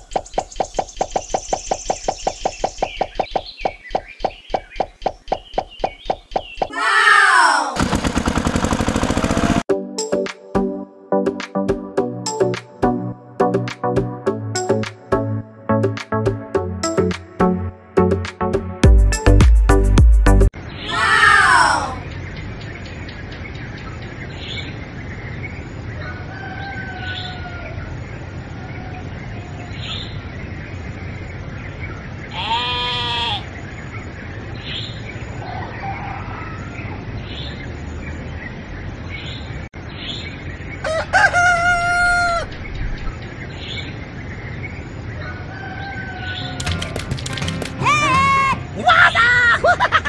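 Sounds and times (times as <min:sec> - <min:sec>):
bird chirps: 0:00.0 - 0:06.7
rooster crowing: 0:26.0 - 0:27.9, 0:35.4 - 0:36.9, 0:40.8 - 0:42.6, 0:45.2 - 0:47.0
faint bird calls: 0:32.3 - 0:33.6.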